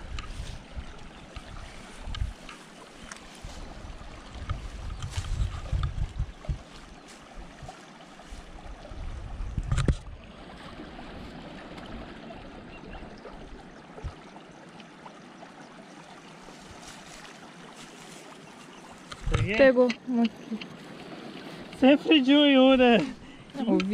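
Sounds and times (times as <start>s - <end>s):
wind buffeting microphone: 0.0s - 14.5s, 18.8s - 23.9s
moving water hiss: 10.4s - 23.9s.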